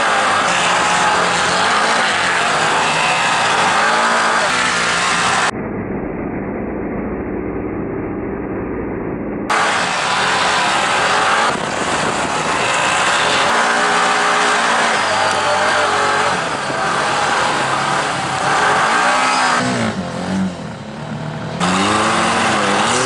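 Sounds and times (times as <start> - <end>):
utility vehicle engines revving: 0.0 - 5.6, 9.5 - 23.0
wind and sand rushing: 9.5 - 15.2.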